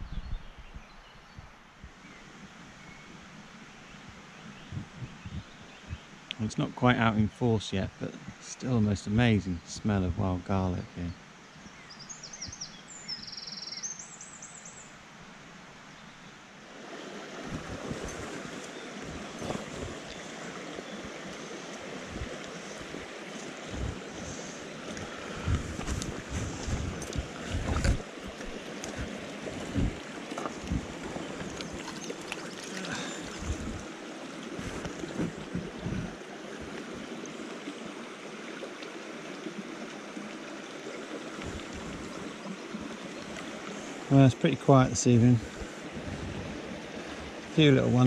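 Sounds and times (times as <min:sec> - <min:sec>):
wind thumps on microphone: 0:04.1 - 0:06.1, 0:17.4 - 0:20.2, 0:22.0 - 0:23.1, 0:23.7 - 0:32.0, 0:33.3 - 0:33.8, 0:34.5 - 0:37.1, 0:45.4 - 0:47.4
river rushing over stones: 0:16.5 - 0:48.0.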